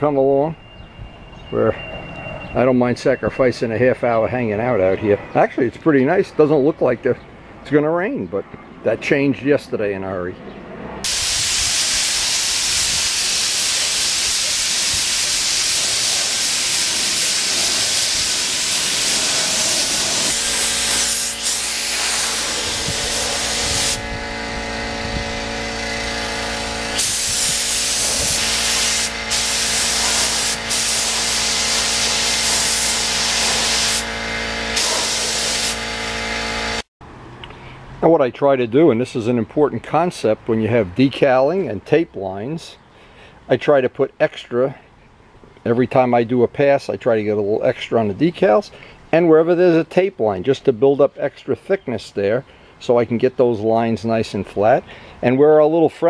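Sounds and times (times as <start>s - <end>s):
spray gun hissing: 11.0s - 24.5s, 25.6s - 36.8s
motor hum: 16.5s - 36.8s.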